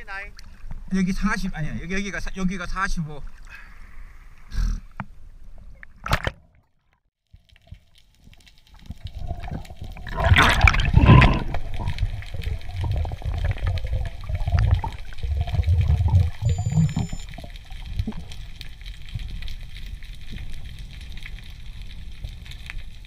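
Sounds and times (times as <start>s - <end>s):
water splash: 5.8s - 6.6s, 8.8s - 18.4s
underwater rushing and bubbling: 7.4s - 23.0s.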